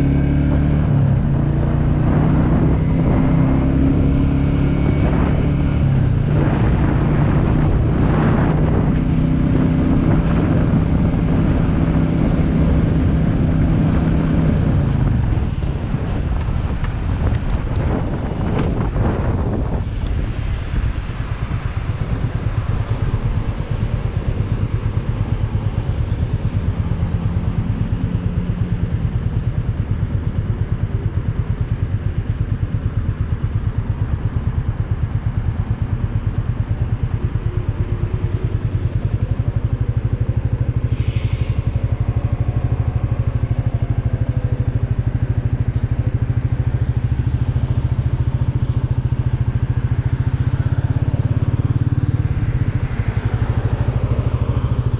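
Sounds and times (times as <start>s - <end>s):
motorcycle engine idling: 21.8s - 54.9s.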